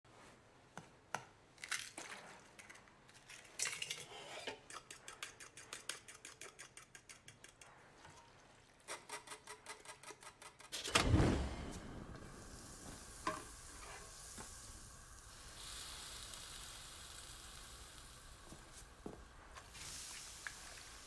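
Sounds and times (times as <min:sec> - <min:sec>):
eggs cracked into metal bowl: 0:01.1 - 0:07.6
whisk clicking against bowl: 0:04.7 - 0:07.7.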